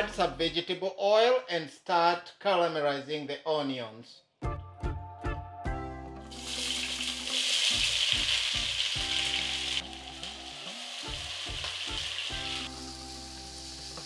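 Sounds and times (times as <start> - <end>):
onions sizzling in hot oil: 6.3 - 14.0.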